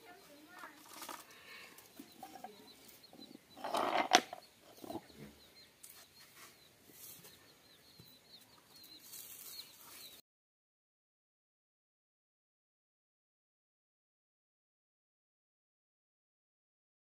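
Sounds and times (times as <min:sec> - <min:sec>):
small birds chirping: 0:00.0 - 0:10.2
twigs and leaves rustling and snapping: 0:09.0 - 0:10.0.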